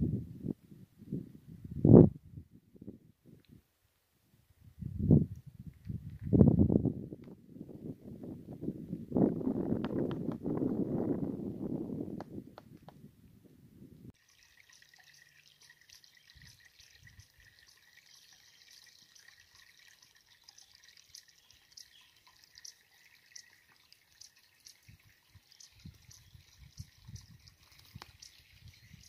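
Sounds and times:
wind rumble on microphone: 0.0 - 3.6, 4.3 - 14.1, 24.8 - 29.0
stream trickling: 14.1 - 29.0
small water drips: 14.2 - 29.0.

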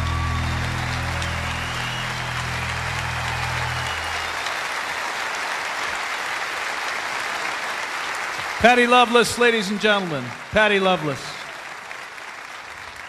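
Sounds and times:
band holding a chord: 0.0 - 4.3
audience applauding: 0.0 - 13.0.

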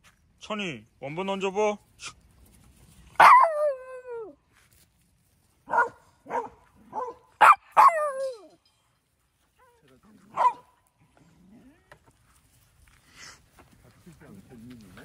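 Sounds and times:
dog barking: 3.2 - 3.6, 5.6 - 8.2, 10.3 - 10.8.

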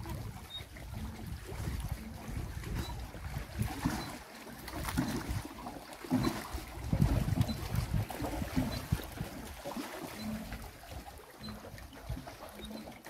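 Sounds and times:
wind buffeting microphone: 0.0 - 5.6, 6.4 - 9.6
waves lapping on stony shore: 0.0 - 13.0.

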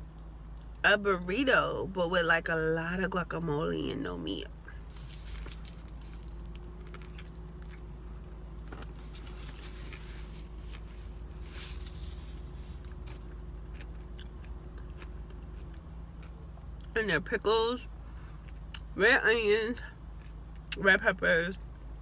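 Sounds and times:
low hum: 0.0 - 22.0
person chewing food: 4.8 - 17.0, 18.1 - 18.9, 20.2 - 20.8.

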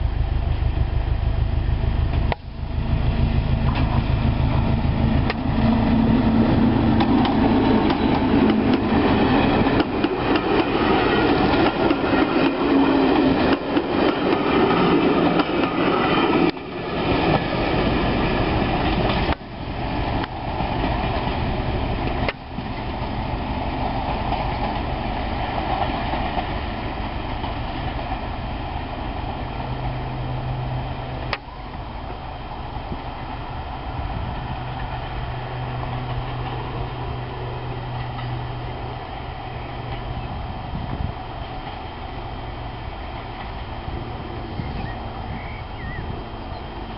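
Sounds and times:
train wheels clattering over rail joints: 6.7 - 22.9.

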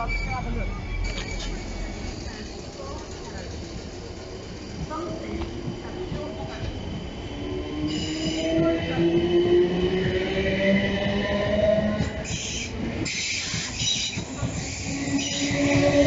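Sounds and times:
high-pitched wheel squeal: 0.0 - 2.0, 12.3 - 16.0.

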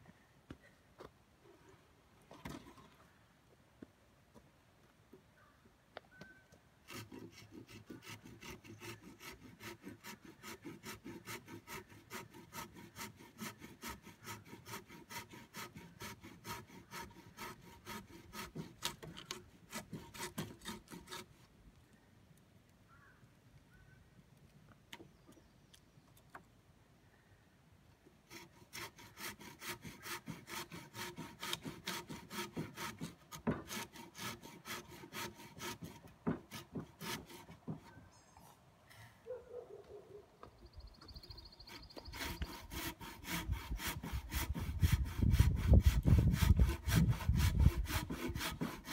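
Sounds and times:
handsaw cutting timber: 6.8 - 21.5, 28.2 - 38.0, 41.6 - 48.9.

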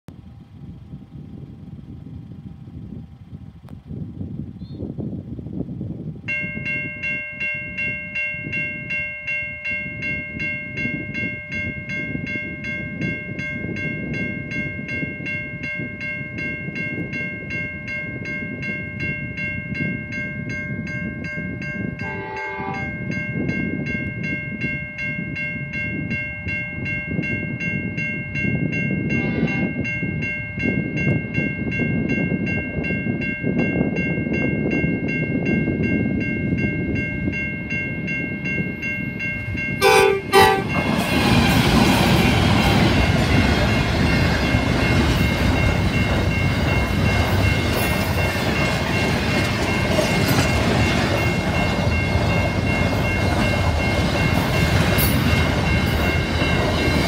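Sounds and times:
diesel freight train rumble: 0.1 - 57.0
level crossing warning bell: 6.2 - 57.0
locomotive horn blasts: 22.0 - 23.0, 29.1 - 29.8, 39.8 - 40.9.

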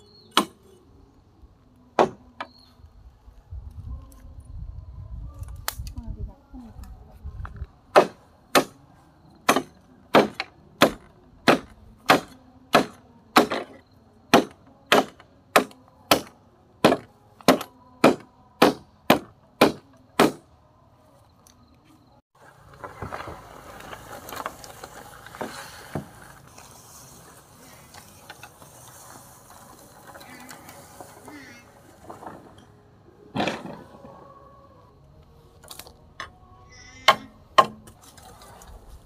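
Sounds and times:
chopping blows on wood: 7.9 - 8.8, 9.4 - 20.4.

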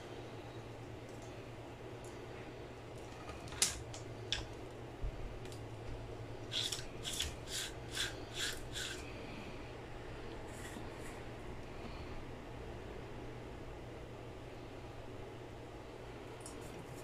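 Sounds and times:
steady low hum: 0.0 - 17.0
scratchy rubbing strokes: 6.5 - 9.1.

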